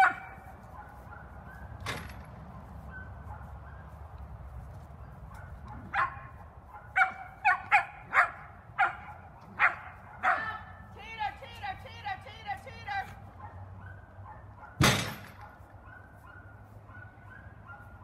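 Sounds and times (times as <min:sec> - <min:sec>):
dog barking: 0:00.0 - 0:01.8, 0:02.8 - 0:04.0, 0:05.0 - 0:10.8, 0:13.4 - 0:18.0.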